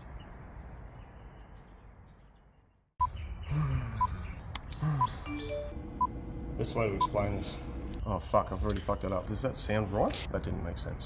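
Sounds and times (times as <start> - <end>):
faint insect-like chirping: 0.0 - 3.2.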